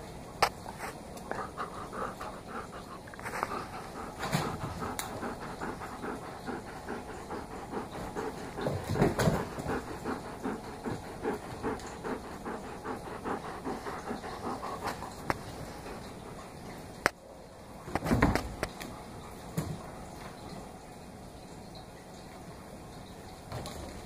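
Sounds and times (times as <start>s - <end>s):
dog panting rapidly: 0.8s - 16.7s.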